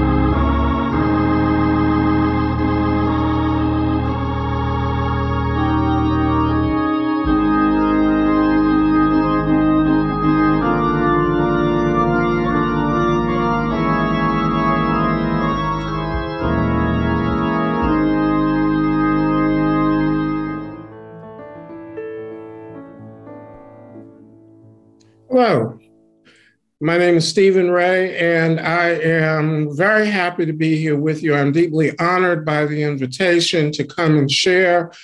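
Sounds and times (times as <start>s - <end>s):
deep bass notes: 0.0s - 20.9s
organ sustained chords: 0.0s - 24.1s, 26.8s - 35.0s.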